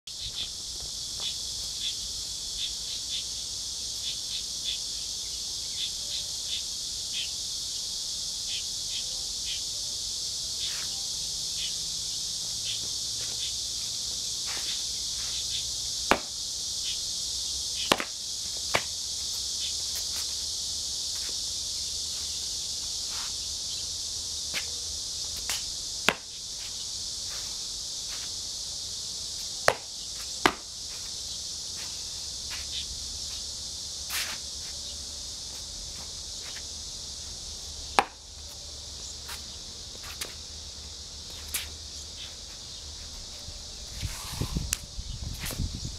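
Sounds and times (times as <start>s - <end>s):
high insect chorus: 0.1s - 45.9s
slaps and stamps on concrete: 16.1s - 16.4s, 17.8s - 19.0s, 25.4s - 26.3s, 29.6s - 30.7s, 38.0s - 38.2s.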